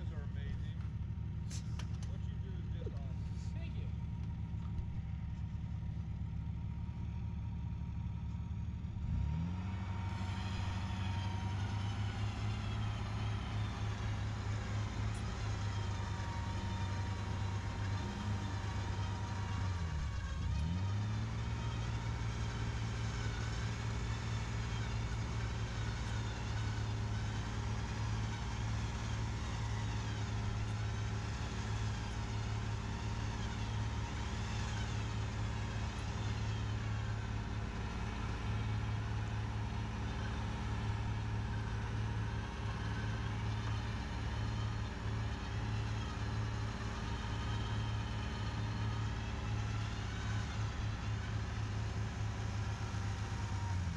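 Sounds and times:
pickup truck engine running: 0.0s - 6.6s.

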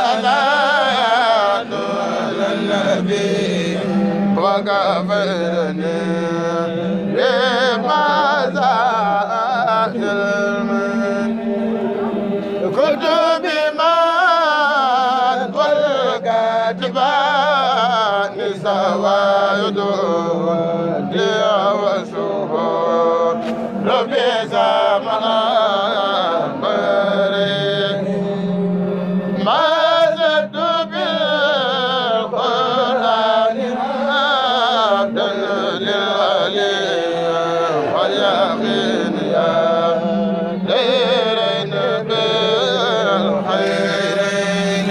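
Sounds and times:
man chanting: 0.0s - 11.4s, 29.3s - 44.9s
male voices holding low note: 0.0s - 44.9s.

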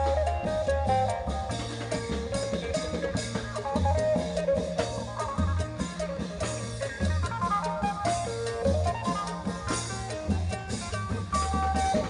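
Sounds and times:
steady drum beat: 0.0s - 12.0s.

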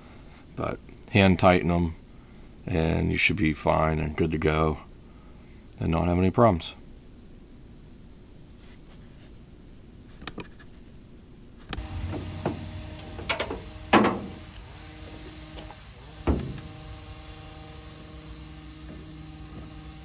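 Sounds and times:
low steady hum: 0.0s - 20.0s
metal tailgate clanking and rattling: 12.1s - 14.4s.

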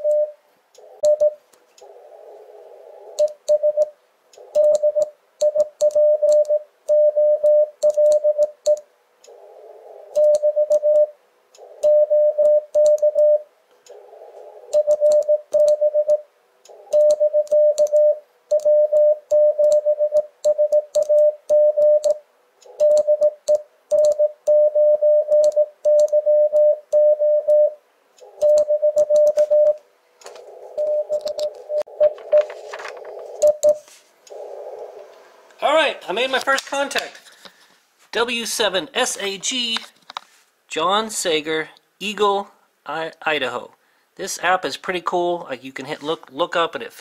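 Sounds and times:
morse code tone: 0.0s - 0.4s, 1.0s - 1.4s, 3.2s - 3.9s, 4.5s - 8.8s, 10.2s - 11.2s, 11.8s - 13.5s, 14.8s - 16.2s, 16.9s - 22.2s, 22.8s - 27.8s, 28.4s - 29.8s, 30.8s - 32.8s, 33.4s - 33.9s
receiver hiss: 28.2s - 45.3s.

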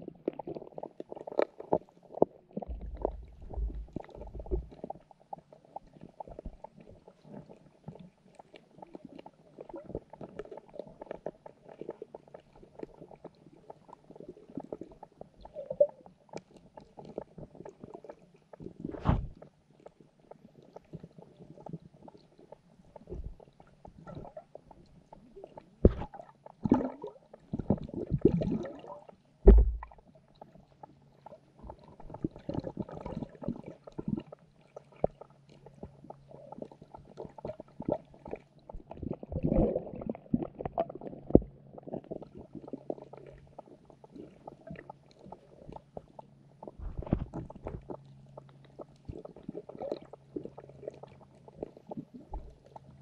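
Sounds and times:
underwater clicks and gurgles: 0.0s - 53.0s
underwater knocks and bumps: 2.5s - 4.9s, 18.8s - 19.4s, 23.0s - 24.4s, 25.8s - 28.8s, 29.4s - 30.0s, 37.1s - 42.3s, 46.6s - 48.0s, 52.2s - 52.7s
deep underwater thumps: 2.6s - 4.8s, 18.9s - 19.4s, 23.1s - 23.4s, 25.8s - 26.2s, 29.4s - 30.0s, 46.8s - 47.9s.

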